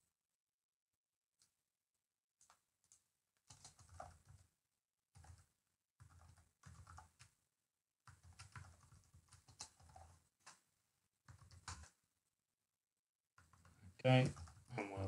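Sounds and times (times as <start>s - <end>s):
faint keyboard typing: 2.4s - 7.4s, 8.1s - 12.0s, 13.4s - 14.9s.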